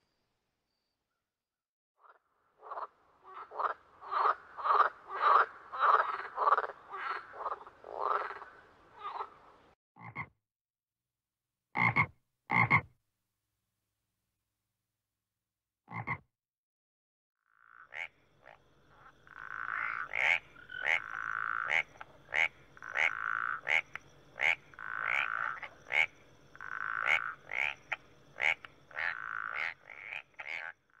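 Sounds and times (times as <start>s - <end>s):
frogs buzzing calls: 2.0s - 9.5s, 17.4s - 31.0s
frogs sharp chirps: 17.5s - 31.0s.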